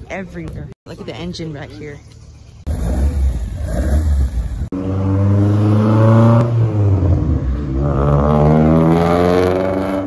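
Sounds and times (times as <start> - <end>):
car engine revving: 2.6 - 10.0.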